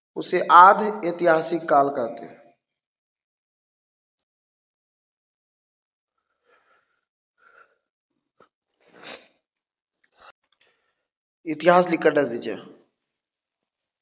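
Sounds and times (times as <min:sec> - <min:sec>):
person breathing and sniffing: 0:06.3 - 0:07.9, 0:08.8 - 0:09.4.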